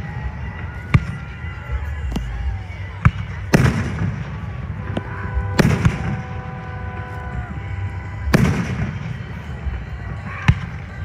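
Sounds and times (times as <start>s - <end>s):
fireworks booming: 3.0s - 7.4s, 8.2s - 9.5s
steady chord-like tone: 4.4s - 10.8s.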